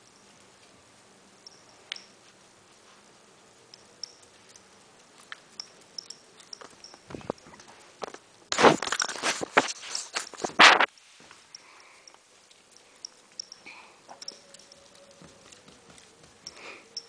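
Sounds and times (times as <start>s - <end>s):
rustle: 0.0s - 17.0s
dog toenails clicking on tile: 3.6s - 8.2s, 11.6s - 17.0s.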